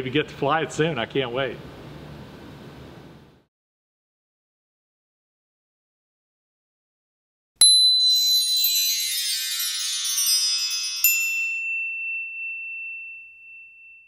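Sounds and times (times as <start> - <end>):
high ringing tone: 7.6 - 14.0
high tinkling chimes: 7.6 - 14.0
bright ping: 11.1 - 14.0.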